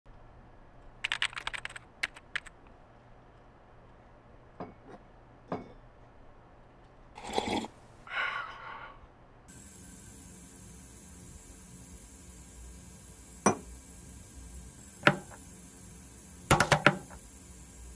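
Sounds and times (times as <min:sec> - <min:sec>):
typing on computer keyboard: 0:01.0 - 0:02.6.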